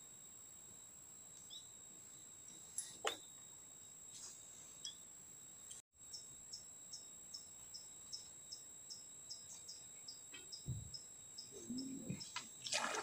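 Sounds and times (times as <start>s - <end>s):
insect chirping: 0.0s - 13.0s
low thump: 10.6s - 11.0s.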